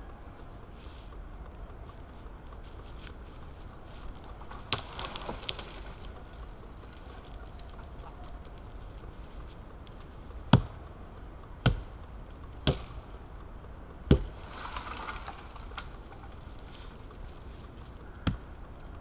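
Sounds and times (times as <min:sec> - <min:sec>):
axe chopping tree trunk: 0:11.6 - 0:11.9, 0:12.6 - 0:13.0, 0:14.1 - 0:14.3.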